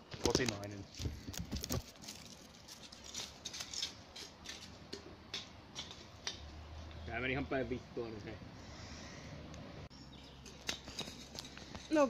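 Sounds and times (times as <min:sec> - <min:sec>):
dry leaves and twigs crackling: 0:00.0 - 0:06.4, 0:10.1 - 0:12.0.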